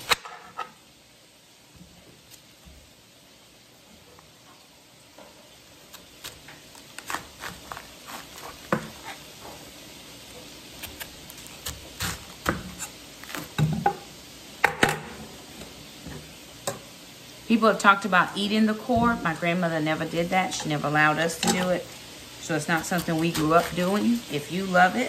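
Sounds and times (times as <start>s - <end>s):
knife cutting cabbage: 5.9s - 9.3s, 10.7s - 13.6s, 22.5s - 24.4s.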